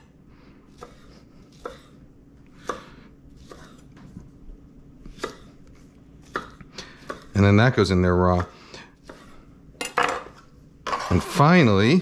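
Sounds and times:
knife chopping tomato: 0.7s - 4.0s, 5.0s - 7.4s, 8.3s - 9.4s.

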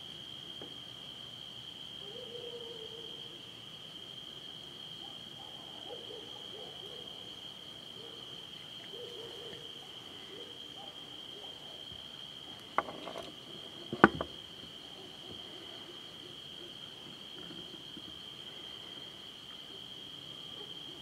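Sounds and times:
night insects chorus: 0.0s - 21.0s
owl hooting: 2.0s - 3.0s, 8.0s - 11.7s
sharp knocks on camera: 13.9s - 14.3s.

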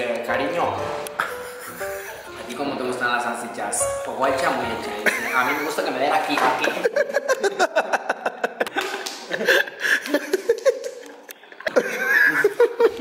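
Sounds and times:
people laughing: 1.2s - 2.3s, 5.0s - 13.0s
people talking: 2.4s - 7.6s.

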